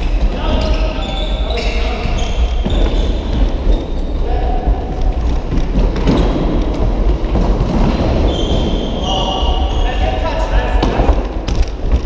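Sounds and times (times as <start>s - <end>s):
shoe squeaks: 0.0s - 6.8s, 7.9s - 10.7s.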